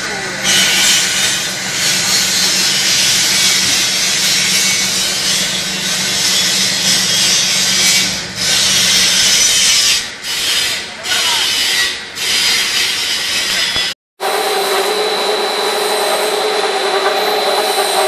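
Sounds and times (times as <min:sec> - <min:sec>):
machine hiss: 0:14.2 - 0:18.0.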